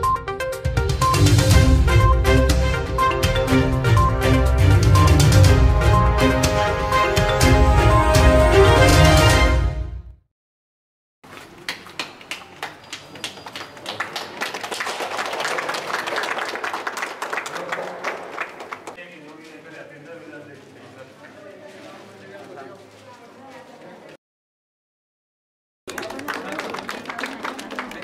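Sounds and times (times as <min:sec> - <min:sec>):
crowd clapping: 0:11.3 - 0:19.0, 0:25.9 - 0:28.0.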